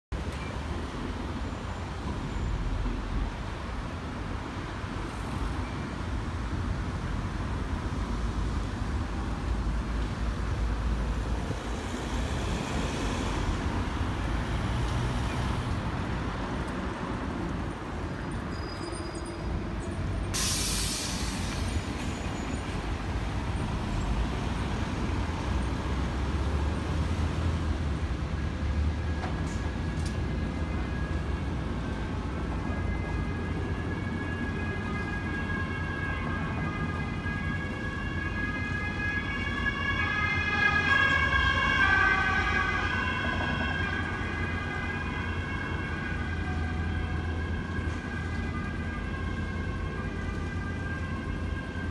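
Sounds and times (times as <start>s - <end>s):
city traffic rumble: 0.1s - 51.9s
brief hiss: 20.3s - 21.8s
two-tone emergency siren: 29.9s - 51.9s.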